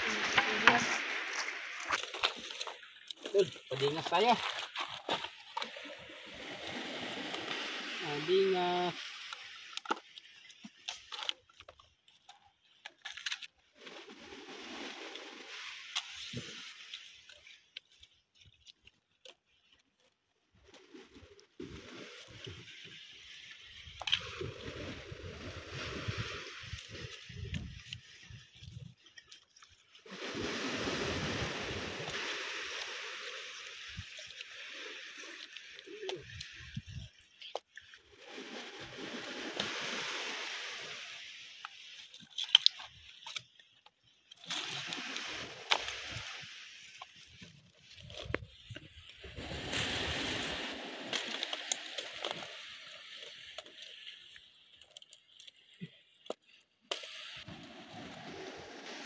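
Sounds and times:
surf washing in: 0:00.0 - 0:02.6, 0:05.6 - 0:09.7, 0:30.0 - 0:36.6, 0:38.1 - 0:41.9, 0:49.2 - 0:53.2, 0:57.2 - 0:59.0.

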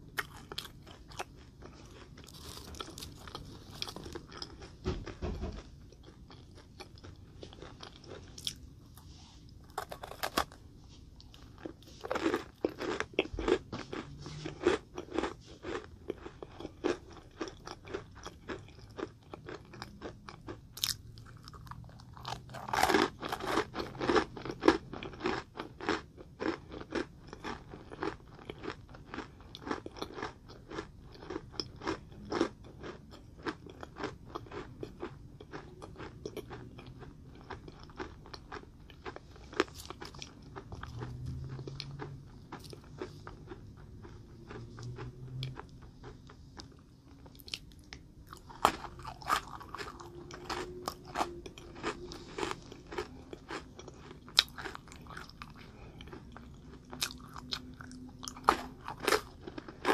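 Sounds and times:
chewing: 0:00.0 - 0:10.6, 0:11.2 - 0:59.9
crisp crunches of macaron: 0:00.0 - 0:59.9.

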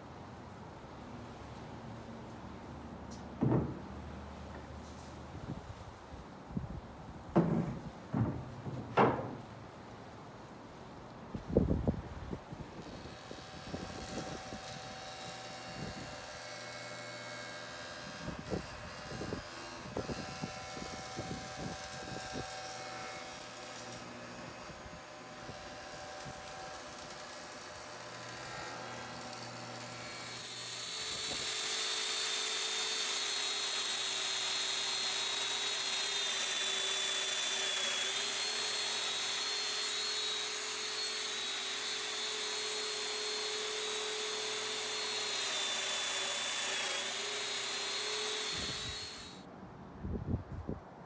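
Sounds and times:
knocks: 0:03.4 - 0:03.9, 0:07.3 - 0:09.5
power joiner motor whining: 0:12.8 - 0:49.4.

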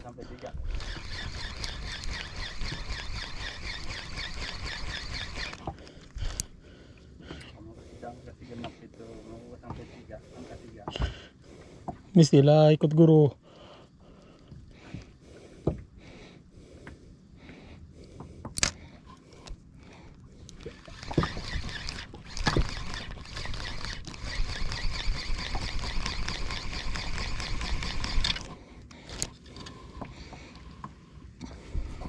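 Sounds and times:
fishing reel ticking: 0:00.1 - 0:06.6, 0:20.4 - 0:31.7
rod and reel clicks: 0:00.1 - 0:06.6, 0:18.0 - 0:32.0.

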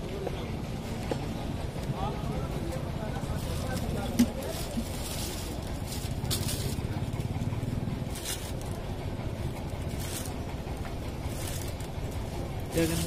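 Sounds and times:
low background rumble: 0:00.0 - 0:13.0
bag crinkling: 0:03.2 - 0:07.0, 0:08.0 - 0:08.8.

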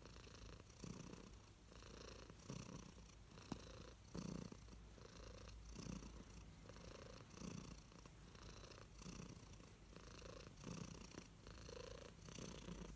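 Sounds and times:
cat purring: 0:00.0 - 0:12.9.

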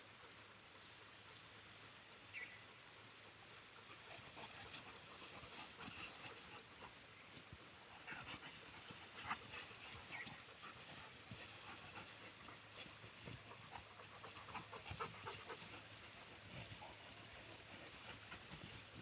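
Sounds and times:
insect chirring: 0:00.2 - 0:19.0.

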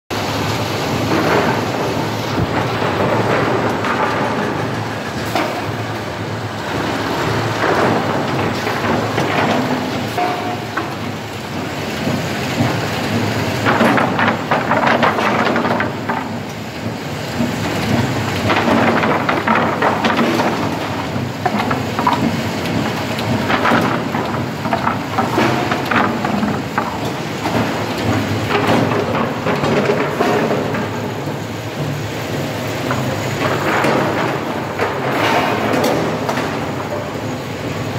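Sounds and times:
conveyor machinery clattering: 0:00.1 - 0:37.9
machinery rumble: 0:00.1 - 0:37.9
wooden boards knocking: 0:12.0 - 0:37.0.

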